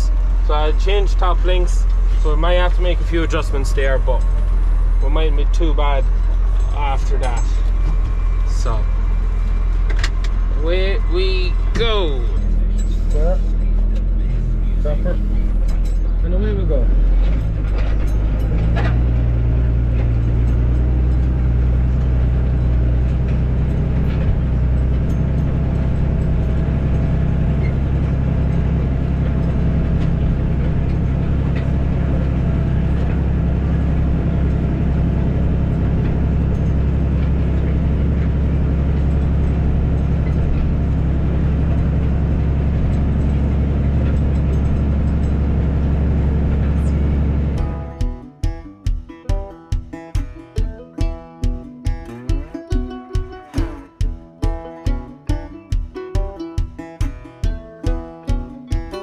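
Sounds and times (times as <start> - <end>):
tractor diesel engine under load: 0.0 - 48.5.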